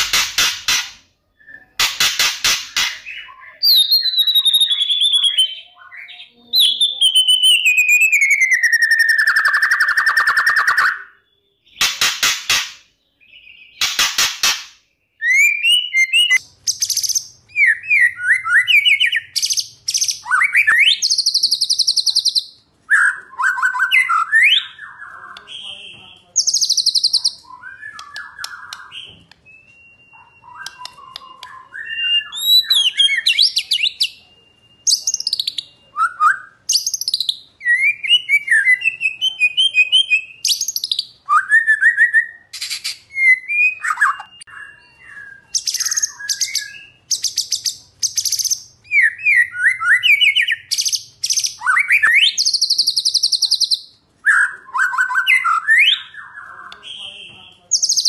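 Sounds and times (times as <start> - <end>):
songbird singing: 2.7 - 12.1, 14.8 - 58.0.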